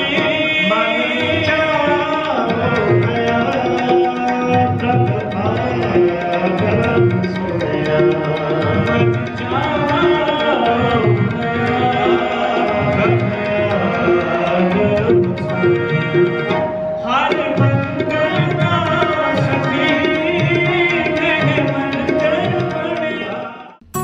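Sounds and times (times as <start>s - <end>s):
harmonium chords: 0.0s - 24.0s
tabla rhythm: 0.0s - 24.0s.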